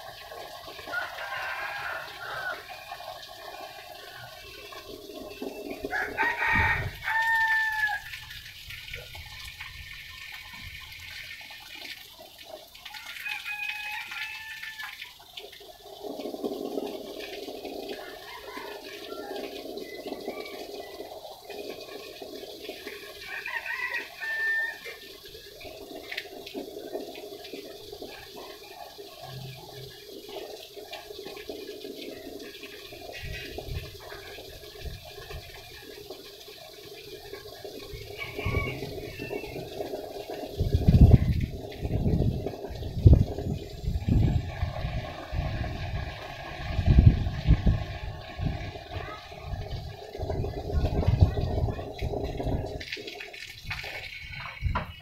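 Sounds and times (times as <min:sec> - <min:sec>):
rooster crowing: 0:00.9 - 0:02.8, 0:05.9 - 0:08.2, 0:12.9 - 0:15.0, 0:18.0 - 0:19.4, 0:23.3 - 0:25.0, 0:38.0 - 0:39.9.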